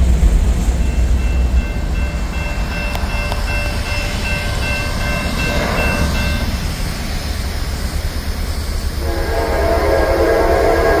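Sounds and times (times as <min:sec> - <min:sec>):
freight train rumbling: 0:00.0 - 0:11.0
crossing warning bell ringing: 0:00.6 - 0:08.2
locomotive horn: 0:09.0 - 0:11.0.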